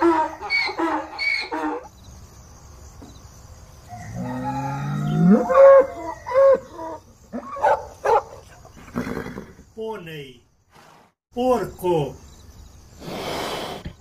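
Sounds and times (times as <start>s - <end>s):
donkey braying: 0.0s - 1.9s
bull mooing: 4.1s - 6.0s.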